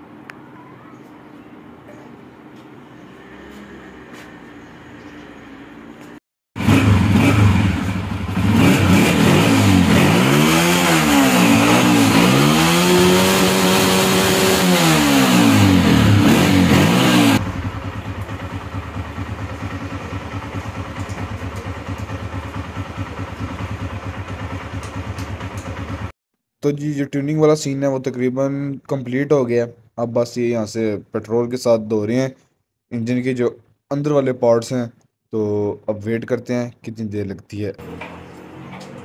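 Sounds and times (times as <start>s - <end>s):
motorcycle engine idling: 6.6s - 8.6s, 17.3s - 26.1s
motorcycle engine revving: 6.6s - 26.1s.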